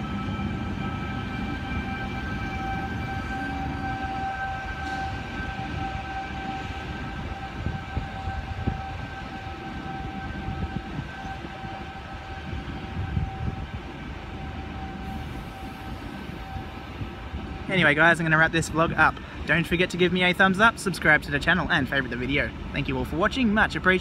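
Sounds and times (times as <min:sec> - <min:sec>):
train wheels rumbling on rail: 0:00.0 - 0:24.0
clunks over track: 0:04.2 - 0:06.2.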